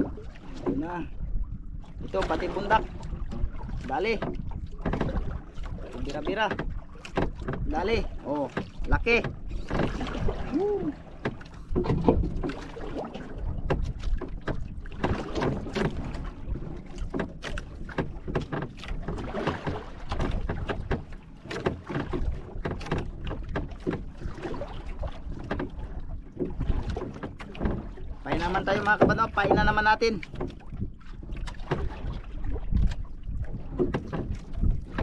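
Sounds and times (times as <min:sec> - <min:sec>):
wind buffeting the microphone: 0:00.0 - 0:21.1, 0:22.0 - 0:35.0
water slapping against a boat hull: 0:00.0 - 0:35.0
sharp knocks and clicks: 0:04.1 - 0:05.3, 0:06.2 - 0:07.7, 0:11.2 - 0:12.6, 0:13.6 - 0:16.2, 0:17.0 - 0:24.1, 0:33.7 - 0:35.0.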